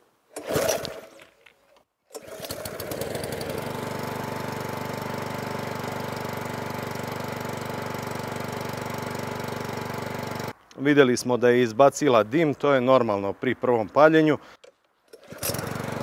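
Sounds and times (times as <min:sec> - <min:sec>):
lawn mower engine starting: 0:00.3 - 0:01.4, 0:02.1 - 0:10.6, 0:15.1 - 0:16.0.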